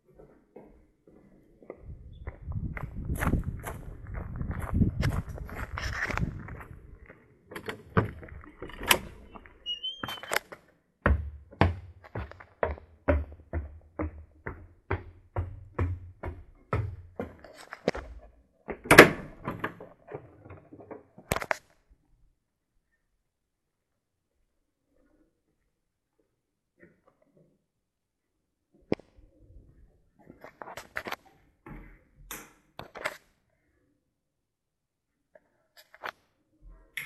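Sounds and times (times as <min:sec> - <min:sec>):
short squeak: 0:09.6 - 0:10.5
footsteps on wooden stairs: 0:11.0 - 0:18.8.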